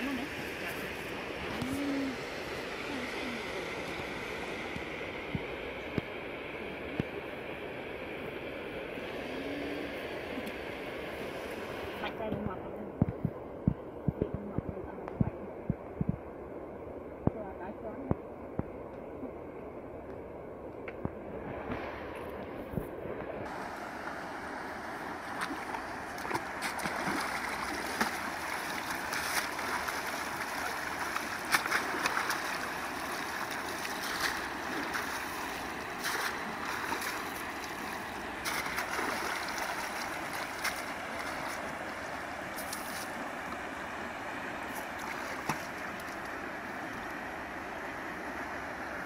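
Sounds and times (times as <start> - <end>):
fast-flowing river rushing: 23.5 - 46.6
splashes and knocks in water: 25.2 - 41.7, 44.7 - 46.4.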